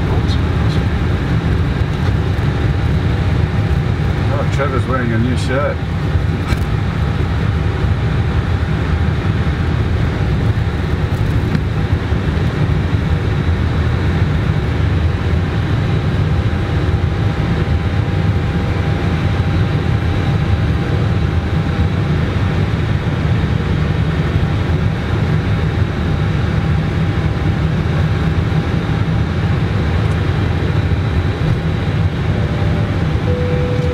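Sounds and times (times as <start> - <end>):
aircraft cockpit rumble: 0.0 - 33.9
faint steady tones: 32.3 - 33.9.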